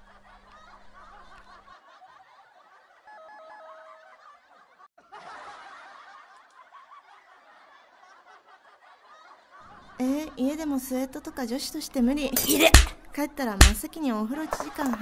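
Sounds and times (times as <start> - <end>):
audience laughing: 0.0 - 10.4, 12.3 - 13.1, 14.3 - 15.0.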